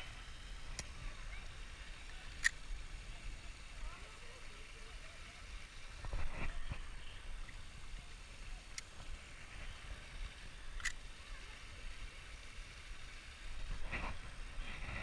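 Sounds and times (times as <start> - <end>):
water running over spillway: 0.0 - 15.0
fishing reel clicks: 2.0 - 3.1, 10.2 - 11.2.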